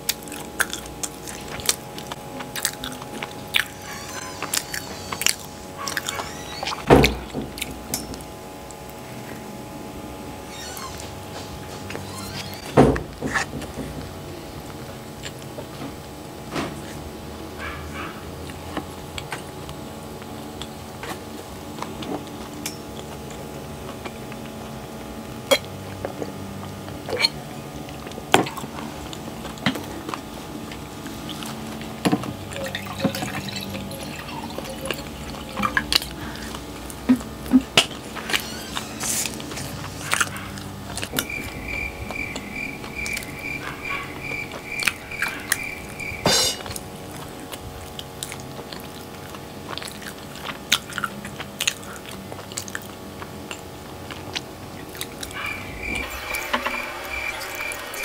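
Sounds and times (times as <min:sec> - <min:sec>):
quick evenly spaced ticks: 0:41.2 - 0:46.2.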